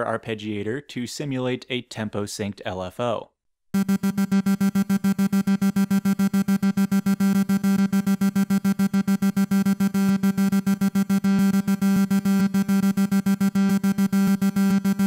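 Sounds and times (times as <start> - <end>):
pulsing synth note: 3.8 - 15.0.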